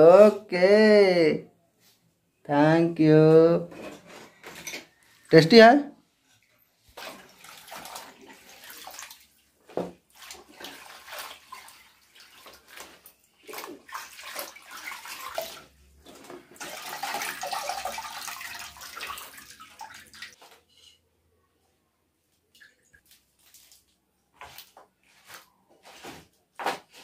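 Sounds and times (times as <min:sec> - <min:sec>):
water splashing in steel bucket: 0:06.9 - 0:20.4.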